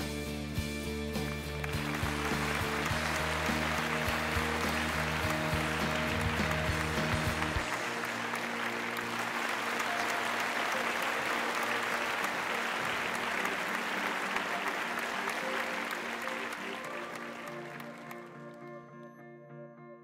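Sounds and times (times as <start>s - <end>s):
background music: 0.0s - 20.0s
audience applauding: 0.9s - 19.0s.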